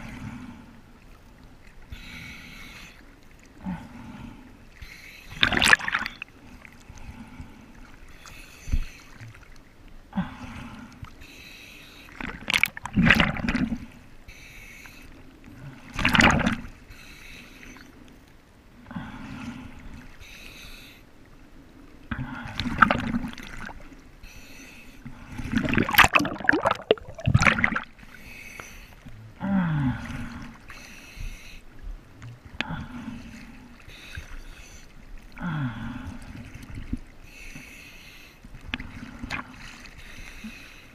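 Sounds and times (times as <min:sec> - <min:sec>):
sea waves sloshing: 0:00.0 - 0:40.9
lapping water: 0:05.3 - 0:07.2, 0:25.0 - 0:31.0.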